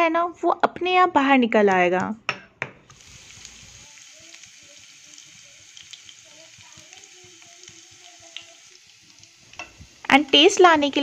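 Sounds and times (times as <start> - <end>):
garlic sizzling in hot oil: 2.8 - 11.0.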